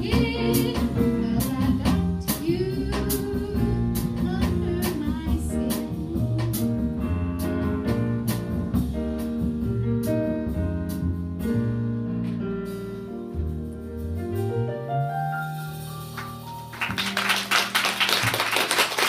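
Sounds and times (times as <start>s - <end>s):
upright bass sliding: 0.0s - 16.9s
jazz combo playing a ballad: 0.0s - 19.0s
audience applause: 16.2s - 19.0s.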